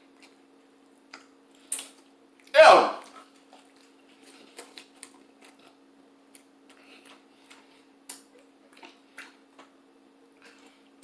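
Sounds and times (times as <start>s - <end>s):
wet chewing sounds: 0.0s - 11.0s.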